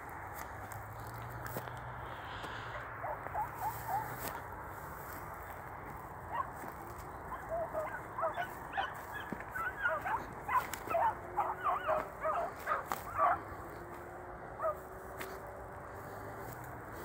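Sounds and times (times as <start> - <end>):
hounds yelping bays: 2.7 - 4.4, 6.2 - 15.4.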